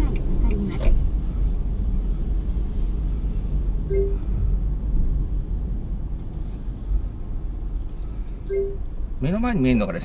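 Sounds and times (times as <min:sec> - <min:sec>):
car engine and tyres rumbling: 0:00.0 - 0:10.0
short beep: 0:03.9 - 0:04.3, 0:08.5 - 0:08.8.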